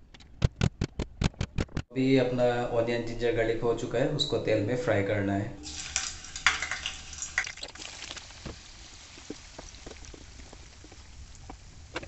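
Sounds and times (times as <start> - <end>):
food sizzling in hot oil: 5.6 - 12.0.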